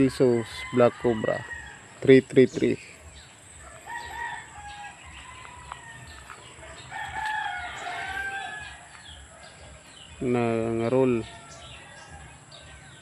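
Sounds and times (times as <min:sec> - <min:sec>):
rooster crowing: 0:00.0 - 0:02.0, 0:03.6 - 0:09.5.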